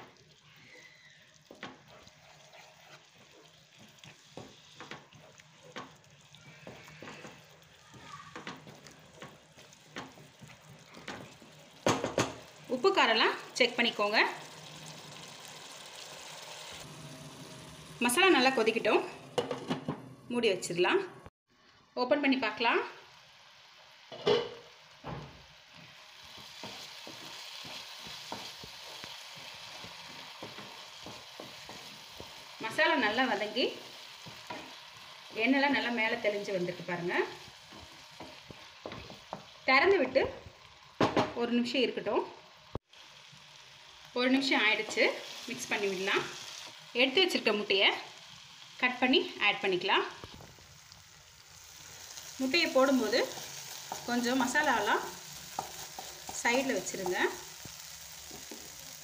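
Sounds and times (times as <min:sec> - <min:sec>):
faint sizzle: 0:00.0 - 0:59.0
spatula scraping a pan: 0:00.6 - 0:07.7, 0:55.0 - 0:56.4.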